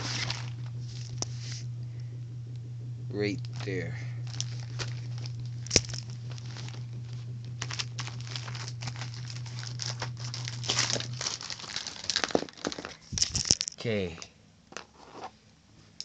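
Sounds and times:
fabric rubbing on phone: 0.0 - 1.7
low hum: 0.0 - 13.7.

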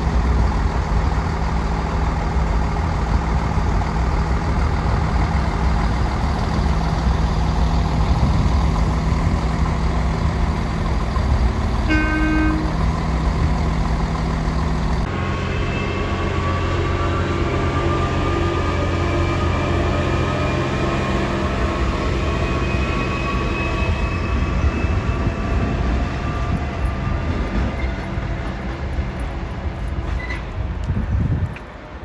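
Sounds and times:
track machine engine: 0.0 - 30.9
train diesel engines running: 0.0 - 32.0
train horn toot: 11.8 - 12.8, 15.1 - 18.2.

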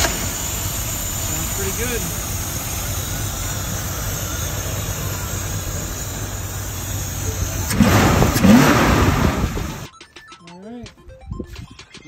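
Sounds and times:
truck engine idling: 0.0 - 10.1
loud rush of noise: 3.0 - 9.9.

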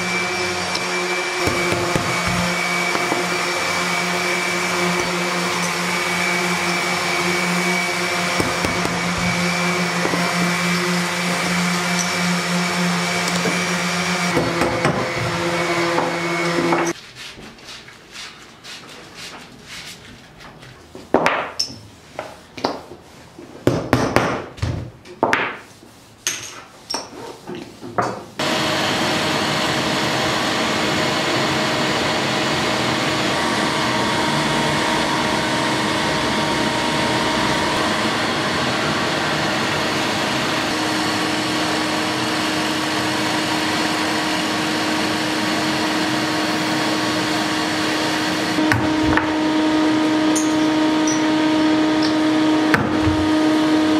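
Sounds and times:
milling machine motor running: 0.0 - 16.8, 28.4 - 53.9.

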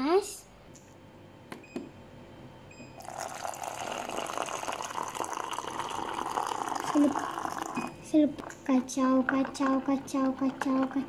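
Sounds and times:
hot water pouring into a jug: 3.0 - 7.9.

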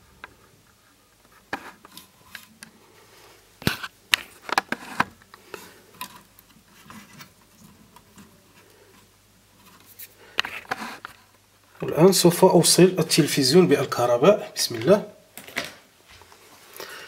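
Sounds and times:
hands handling circuit and wires: 3.6 - 11.4.

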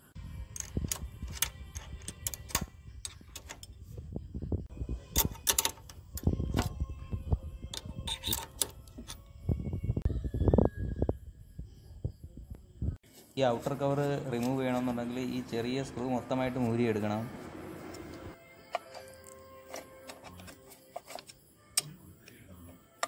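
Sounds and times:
metal tools clinking: 7.7 - 9.2.

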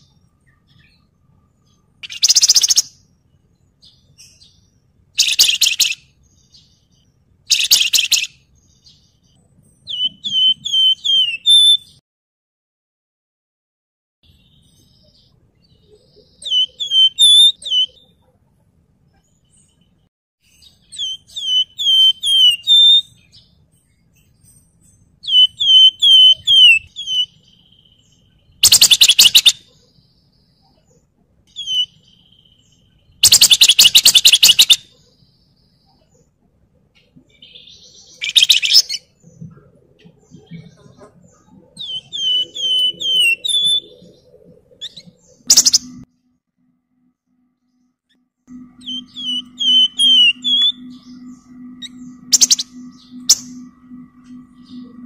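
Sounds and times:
bird whistles falling: 28.6 - 29.6.

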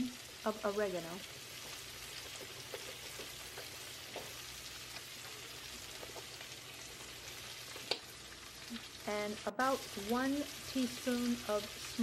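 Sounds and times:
vegetables sizzling in oil: 0.0 - 12.0
small crackles: 1.1 - 9.1.

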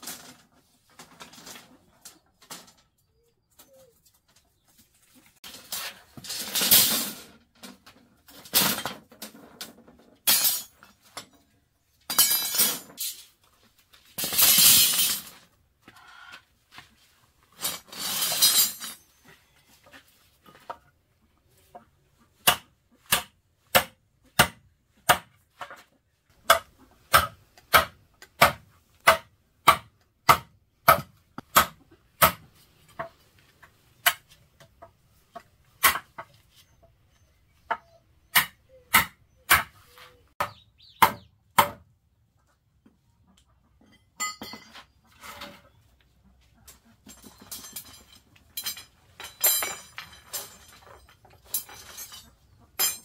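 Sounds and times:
shovel scooping gravel: 17.6 - 18.9.

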